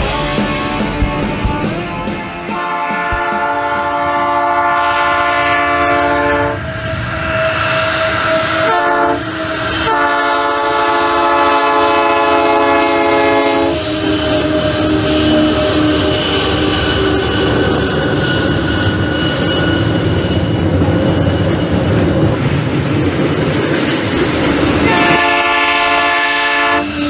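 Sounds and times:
locomotive air horn blasts: 0.0 - 17.6, 24.8 - 27.0
train rumble: 0.0 - 27.0.

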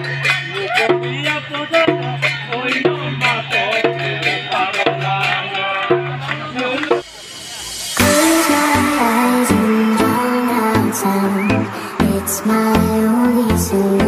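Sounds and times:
rhythmic music with drums: 0.0 - 14.0
person singing: 8.0 - 14.0
repeating bass note: 8.0 - 14.0.

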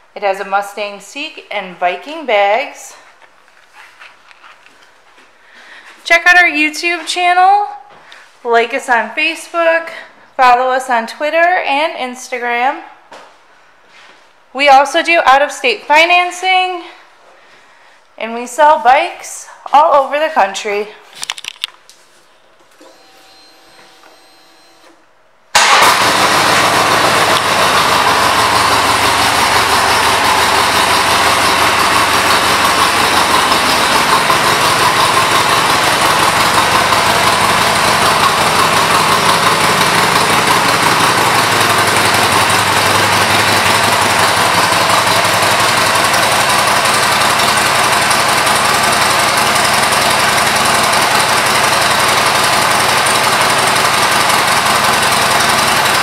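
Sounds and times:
motorcycle engine starting and idling: 25.5 - 56.0.

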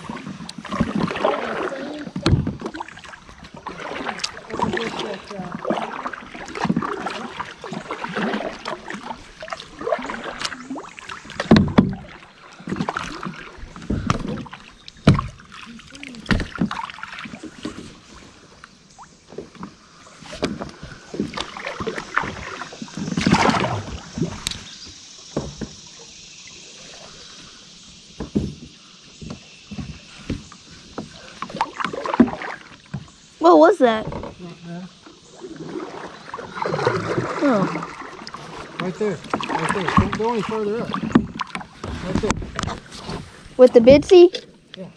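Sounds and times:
paddle splashing in water: 0.0 - 44.9.

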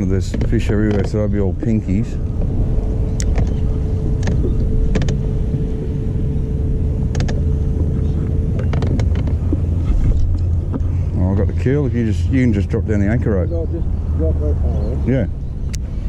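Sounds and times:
boat motor running: 0.0 - 16.0
thin steady hum: 0.0 - 16.0
short knocks: 0.2 - 2.6.

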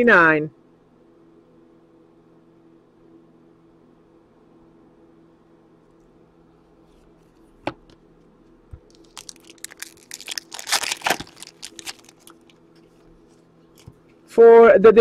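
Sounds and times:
faint steady hum: 0.0 - 15.0
foil wrappers crinkling: 8.9 - 12.6.

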